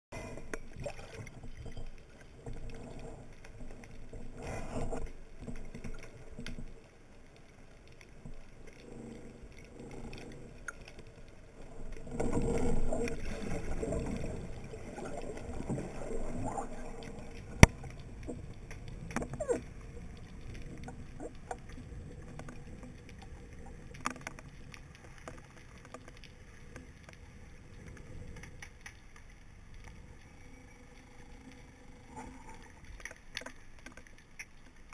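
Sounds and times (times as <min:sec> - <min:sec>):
muffled underwater water movement: 0:00.1 - 0:34.9.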